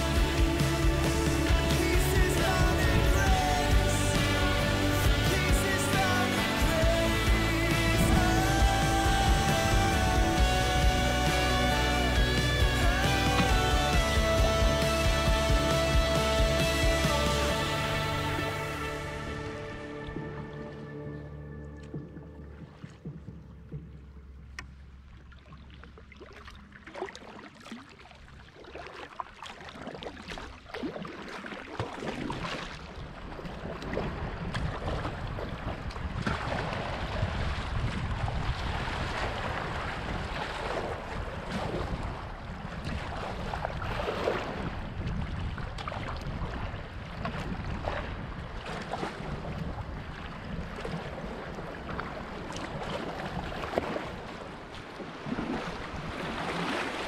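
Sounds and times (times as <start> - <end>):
rushing water: 0.0 - 57.0
wind buffeting microphone: 33.9 - 56.7.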